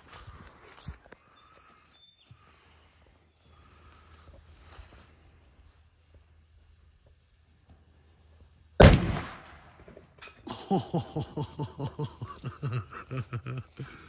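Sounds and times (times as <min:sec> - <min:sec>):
rocket loud bang: 0:08.8 - 0:09.9.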